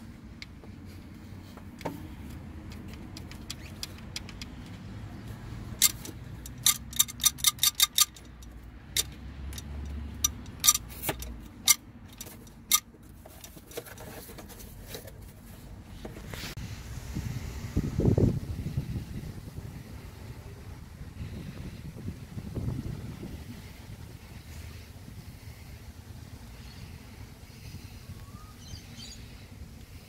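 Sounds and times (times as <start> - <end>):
low steady rumble: 0.0 - 30.0
timing chain metallic clicks: 5.8 - 12.8.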